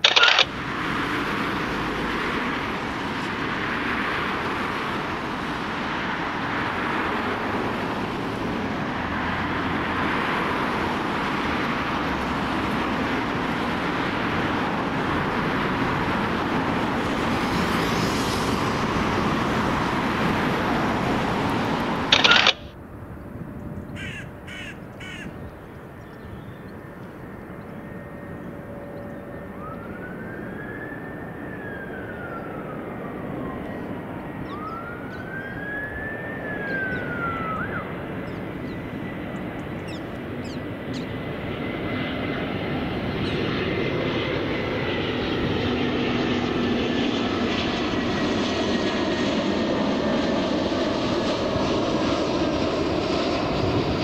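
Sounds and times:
distant jet engines rumbling overhead: 0.0s - 54.0s
gliding whistles: 34.5s - 38.0s.

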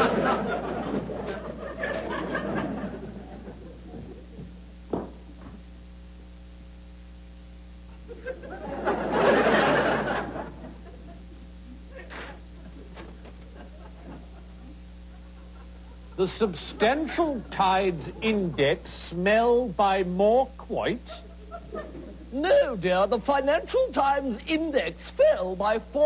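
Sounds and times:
studio audience laughing: 0.0s - 4.5s, 8.0s - 18.6s, 21.1s - 22.3s
single knock: 4.9s - 5.2s.

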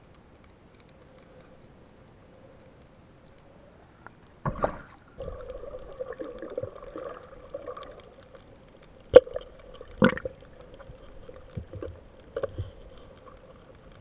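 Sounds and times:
steady hum: 0.9s - 14.0s
underwater gurgling and bubbling: 4.5s - 14.0s.

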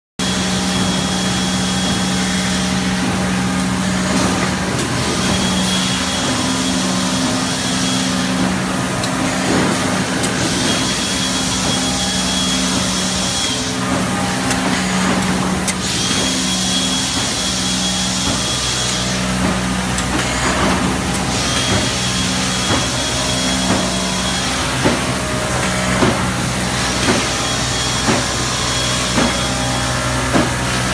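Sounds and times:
machinery hum: 0.2s - 30.9s
machine knocks and clicks: 18.2s - 30.9s.

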